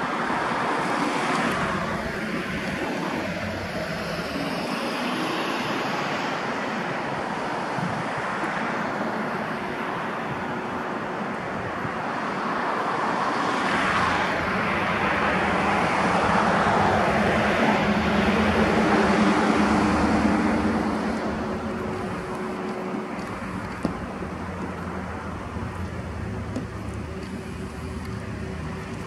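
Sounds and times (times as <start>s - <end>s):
passing vehicle engine: 13.2s - 29.0s.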